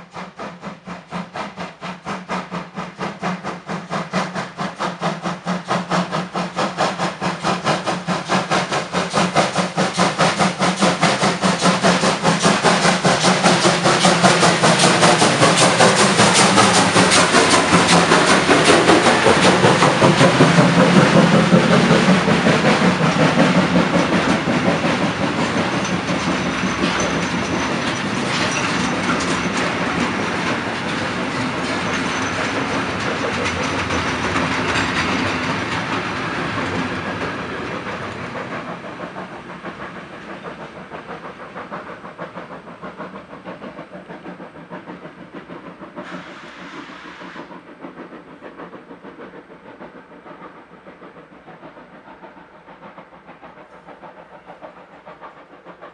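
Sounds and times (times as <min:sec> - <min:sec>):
freight wagons rolling on rails: 0:11.8 - 0:37.3
brief hiss: 0:46.0 - 0:47.5.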